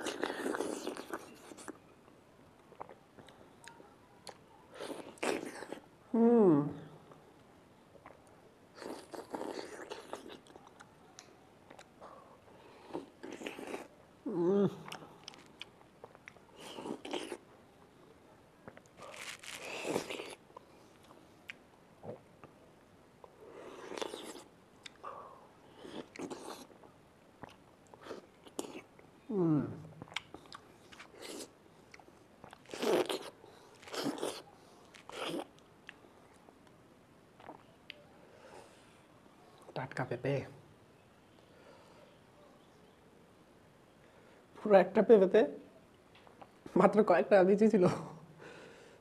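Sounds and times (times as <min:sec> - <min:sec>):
person biting and chewing fruit: 0:08.8 - 0:11.9, 0:14.8 - 0:17.4, 0:18.7 - 0:20.4, 0:23.6 - 0:25.0, 0:25.7 - 0:26.7, 0:29.9 - 0:36.0
person humming: 0:14.3 - 0:15.0, 0:29.3 - 0:29.8
wet chewing and biting: 0:18.6 - 0:22.5, 0:30.0 - 0:36.0
small mouth clicks: 0:29.8 - 0:36.0.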